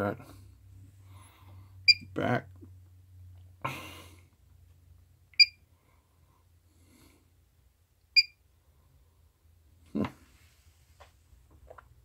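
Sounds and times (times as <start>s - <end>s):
short electronic key beeps: 5.4s - 5.6s, 8.2s - 8.4s.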